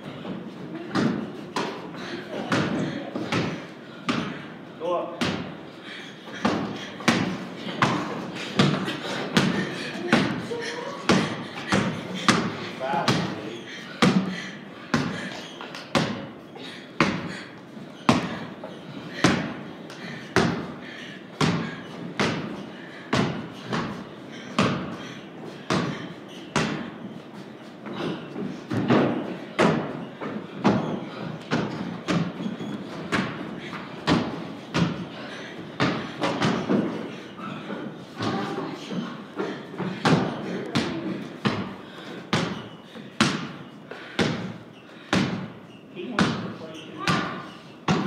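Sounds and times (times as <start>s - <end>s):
basketball bouncing on wooden floor: 42.3s - 42.6s, 46.2s - 46.5s.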